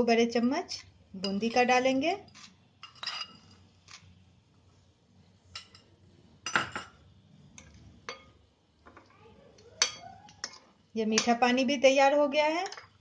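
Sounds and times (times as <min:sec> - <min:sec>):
metal spoon clinking against bowls: 0:01.2 - 0:04.1, 0:05.5 - 0:07.0, 0:07.6 - 0:08.4, 0:09.6 - 0:11.6, 0:12.5 - 0:13.0.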